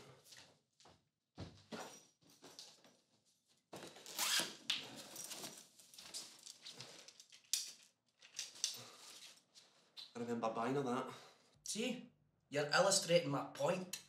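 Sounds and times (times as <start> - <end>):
rummaging through a handbag: 2.2 - 9.6.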